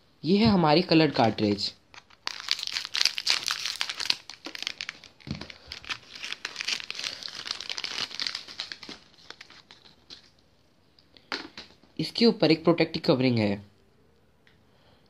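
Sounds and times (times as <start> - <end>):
packaging crinkling and tearing: 1.9 - 10.4.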